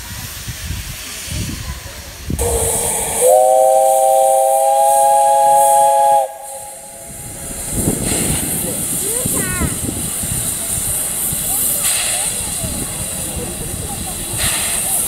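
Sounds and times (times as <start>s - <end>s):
steam hissing: 0.0s - 15.0s
steam locomotive whistle blast: 2.4s - 7.3s.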